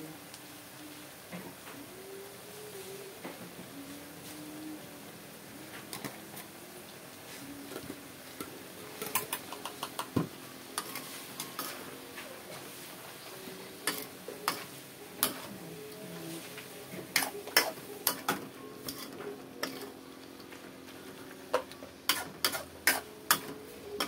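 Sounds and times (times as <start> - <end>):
vegetables sizzling in a wok: 0.0 - 24.0
metal utensils clinking: 9.0 - 10.1
metal spatula scraping pan: 16.4 - 20.0, 22.1 - 23.6.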